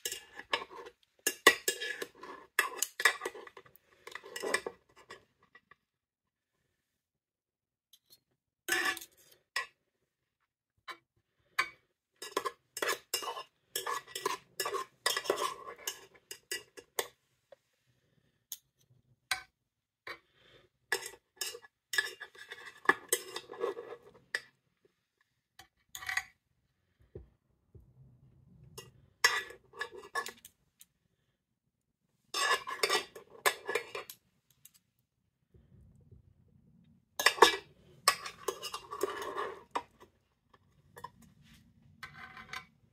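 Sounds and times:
cutlery scraping a metal tin: 0.0 - 5.7, 8.0 - 9.8, 11.6 - 17.2, 20.9 - 24.6, 28.8 - 30.5, 32.3 - 34.2, 37.2 - 40.1.

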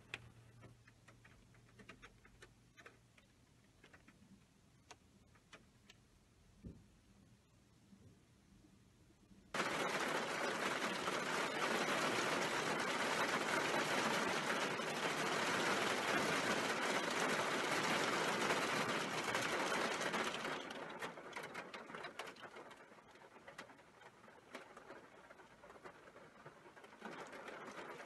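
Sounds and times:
hail and rain rattling: 9.5 - 28.0.

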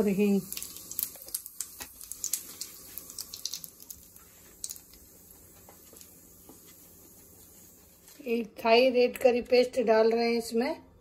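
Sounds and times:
spices sizzling in hot oil: 0.0 - 8.0.

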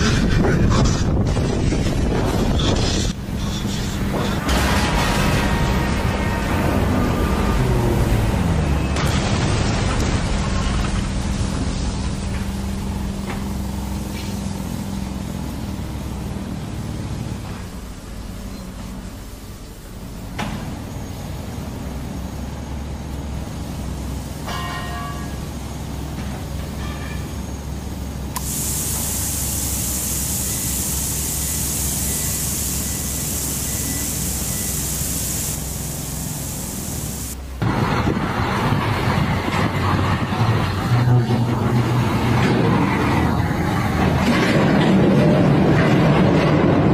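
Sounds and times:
heavy machinery engine rumbling: 0.0 - 46.9
steady low hum: 25.3 - 44.0
pressure washer jet hissing: 28.4 - 37.4.

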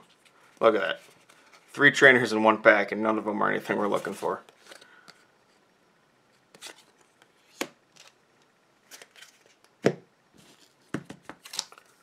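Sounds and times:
cards tapping on tabletop: 10.9 - 11.4.

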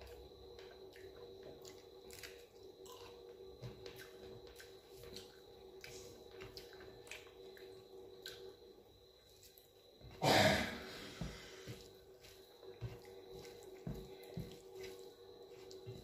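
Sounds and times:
fingers mixing food on plate: 11.7 - 16.0.

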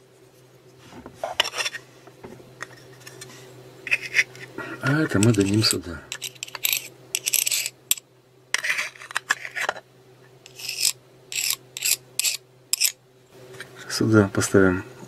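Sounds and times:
screwdriver scraping metal gear: 5.1 - 8.0, 10.4 - 13.0.

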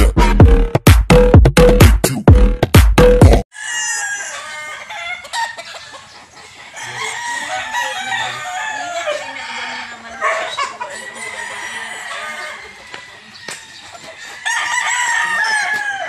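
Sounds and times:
roosters crowing and clucking: 3.5 - 16.0.

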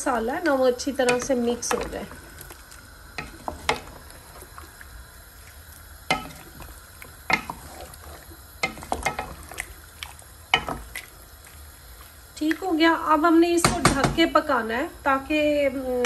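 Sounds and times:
oil sizzling: 0.0 - 16.0
wooden spoon knocking metal pot: 1.0 - 2.2, 3.2 - 4.0, 6.1 - 6.6, 7.2 - 7.7, 8.6 - 9.6, 10.5 - 10.9, 13.6 - 14.3.

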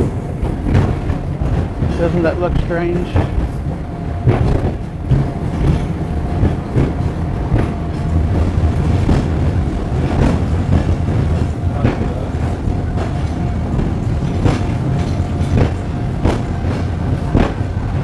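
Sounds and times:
tram car rumbling: 0.0 - 18.0
wheels clacking on track: 0.0 - 18.0.

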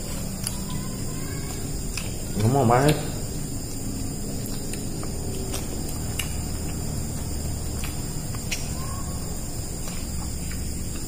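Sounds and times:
crickets trilling: 0.0 - 11.0
low steady hum: 0.0 - 11.0.

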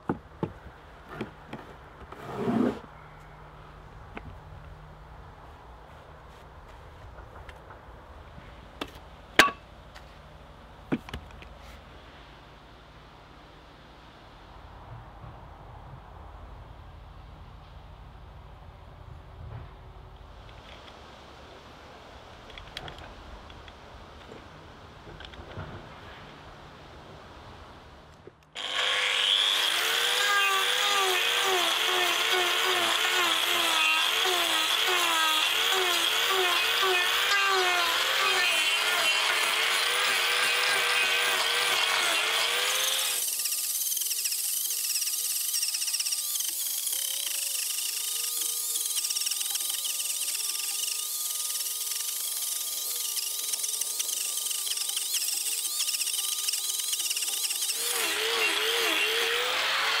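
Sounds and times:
angle grinder cutting wood: 28.6 - 60.0.

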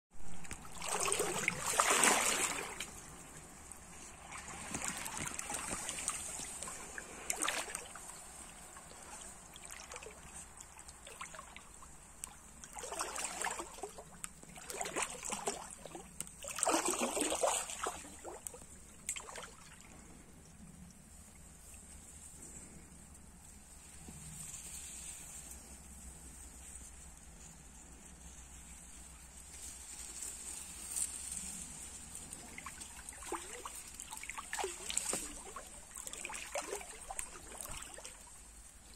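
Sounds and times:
stream water splashing: 0.2 - 20.2, 30.9 - 38.9
faint high-pitched hiss: 0.2 - 38.9.

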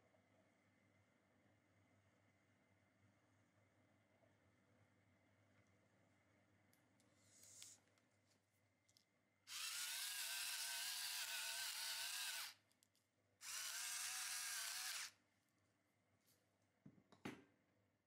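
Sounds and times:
electric pepper mill whine: 9.5 - 12.6, 13.4 - 15.1.

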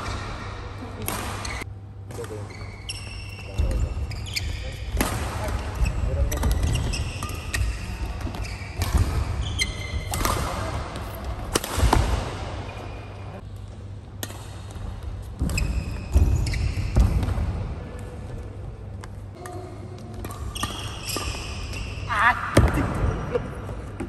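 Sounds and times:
racket hitting shuttlecock: 0.0 - 2.4, 6.4 - 12.8, 14.2 - 18.1, 19.0 - 21.9
shoes squeaking on court: 1.3 - 1.6, 2.2 - 10.4, 14.8 - 17.3, 17.9 - 22.1.

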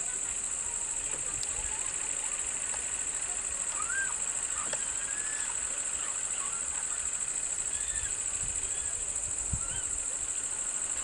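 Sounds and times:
faint bird chirps: 3.7 - 10.1.

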